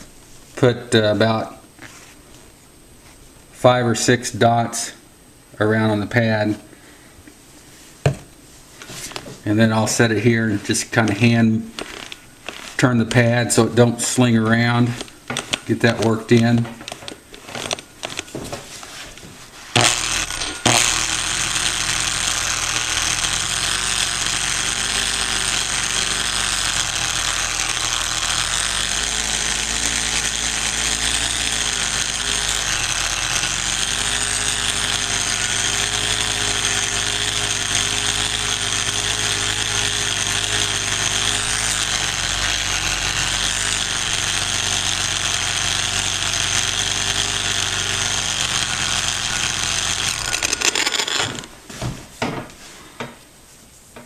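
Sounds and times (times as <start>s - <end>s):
angle grinder buffing stone: 9.1s - 51.6s.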